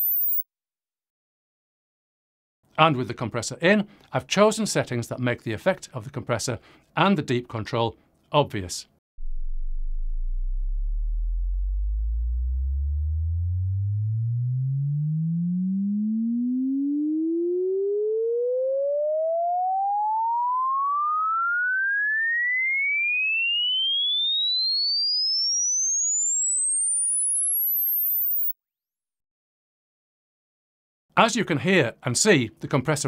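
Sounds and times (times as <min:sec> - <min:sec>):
sine wave sweeping upward: 0:00.0 - 0:00.4, 0:09.2 - 0:28.5.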